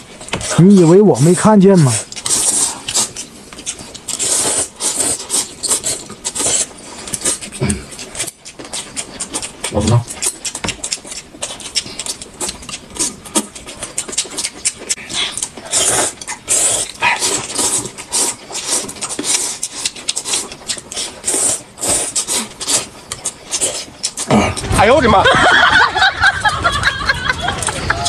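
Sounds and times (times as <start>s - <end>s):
wet chewing: 0.0s - 28.0s
lip-smacking clicks: 8.0s - 17.7s.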